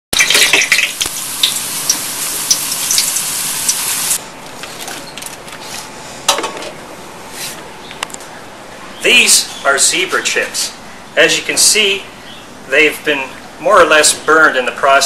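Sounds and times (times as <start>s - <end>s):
potato slices sizzling in oil: 0.2s - 4.2s.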